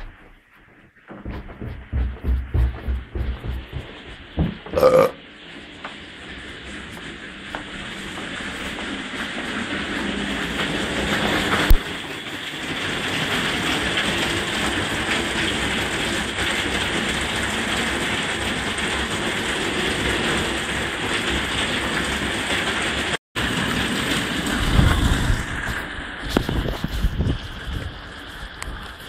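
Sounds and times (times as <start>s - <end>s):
sharp knock: 1.1s - 5.1s
heavy rain pouring: 1.2s - 29.0s.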